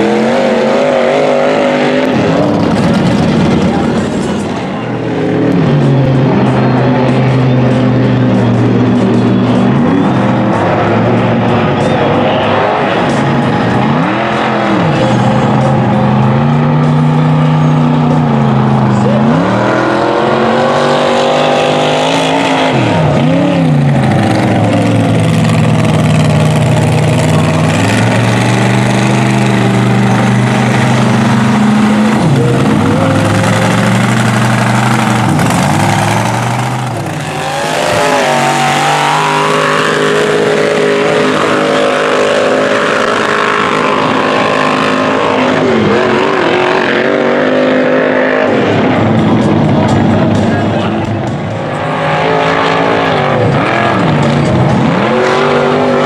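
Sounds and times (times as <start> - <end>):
truck engine revving hard: 0.0 - 56.0
tyres churning water and mud: 23.3 - 48.4.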